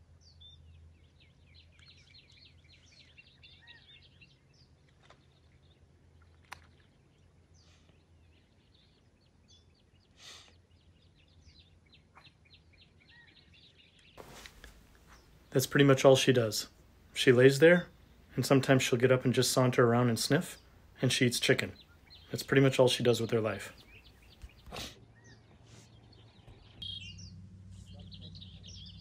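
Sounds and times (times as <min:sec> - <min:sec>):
birds chirping: 0:00.0 - 0:29.0
low hum: 0:26.2 - 0:29.0.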